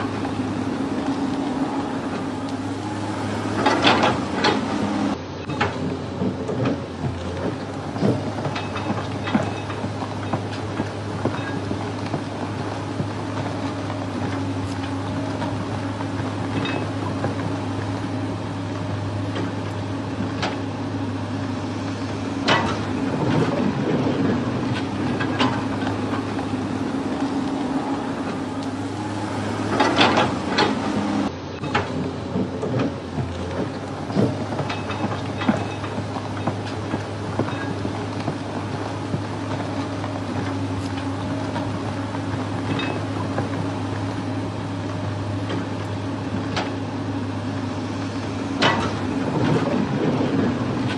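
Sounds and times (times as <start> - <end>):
low mechanical hum: 0.0 - 50.9
sharp knocks and clatters: 5.4 - 15.7, 22.4 - 27.6, 31.6 - 43.6, 48.6 - 50.9.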